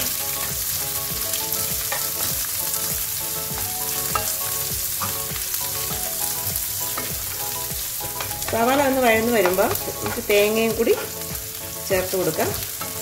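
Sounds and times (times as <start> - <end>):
food sizzling in hot oil: 0.0 - 13.0
spatula scraping pan: 6.8 - 11.3.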